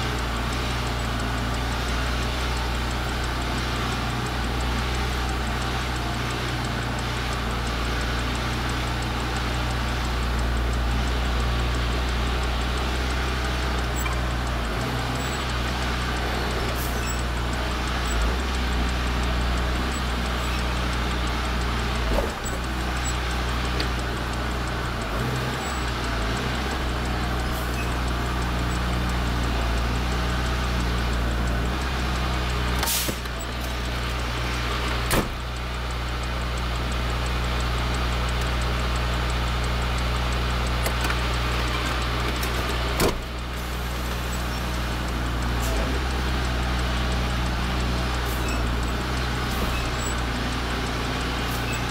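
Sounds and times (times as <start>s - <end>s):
diesel truck engine running: 0.0s - 51.9s
sharp clicks or knocks: 12.8s - 35.5s, 40.7s - 43.7s.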